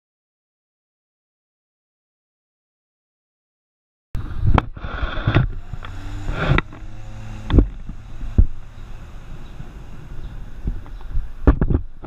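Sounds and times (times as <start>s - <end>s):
water rushing and spraying: 4.2s - 11.5s
outboard motor running hard: 4.2s - 12.0s.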